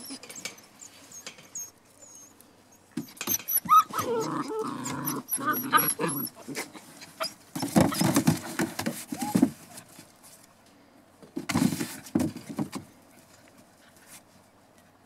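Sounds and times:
puppy paws scrabbling on plastic: 6.5 - 10.5, 11.3 - 14.2.

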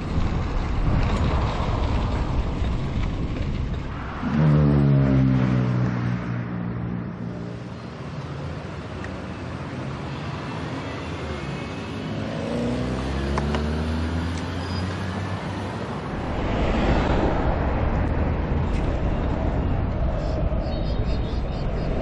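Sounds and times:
wind rumble on microphone: 0.0 - 6.3, 16.0 - 22.0
street traffic: 0.0 - 22.0
motor vehicle passing: 3.8 - 6.7, 15.9 - 20.3.

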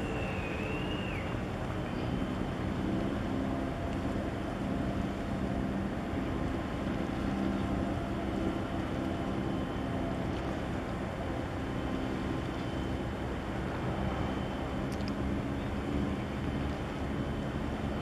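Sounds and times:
ship engine hum: 0.0 - 18.0.

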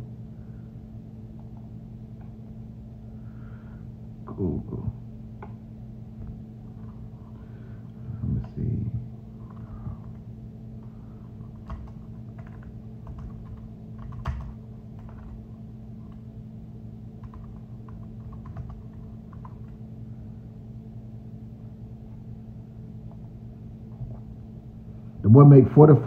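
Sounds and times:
steady low hum: 0.0 - 26.0
keyboard typing taps: 11.5 - 15.4, 17.2 - 19.8.

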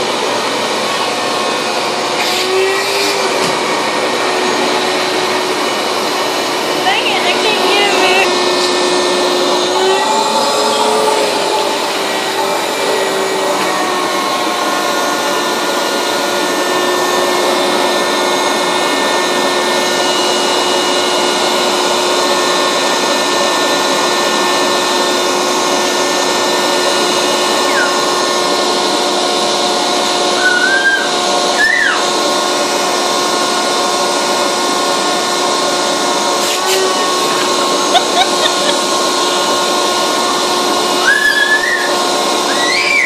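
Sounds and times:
vacuum cleaner running: 0.0 - 43.0
short rising squeaks: 41.0 - 43.0.

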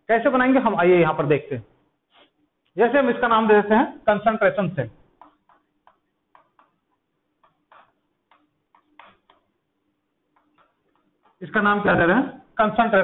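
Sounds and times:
chalk tapping and scraping: 5.1 - 9.6, 10.3 - 11.5.

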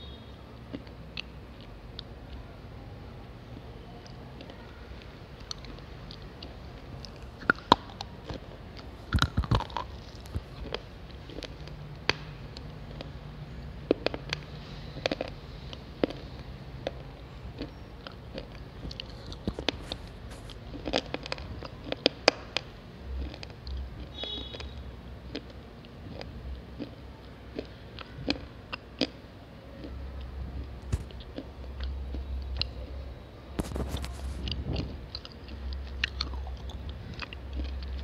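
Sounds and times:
slate pencil being chewed: 5.4 - 11.8, 16.0 - 22.6, 33.6 - 38.0.

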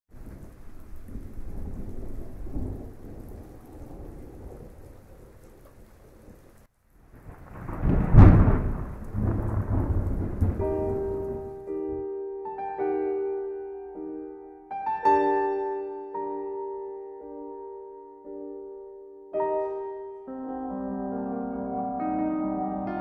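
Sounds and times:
rain: 0.1 - 12.0
rolling thunder: 0.1 - 12.0
loud thunderclap: 0.2 - 11.7.

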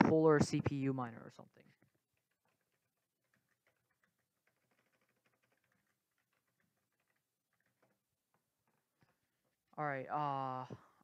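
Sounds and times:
computer keyboard typing: 1.6 - 9.3.

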